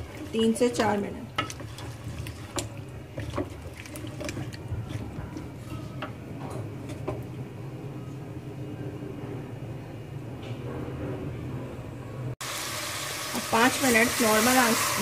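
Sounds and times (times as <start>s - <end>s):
spoon scraping metal pot: 0.0s - 6.1s.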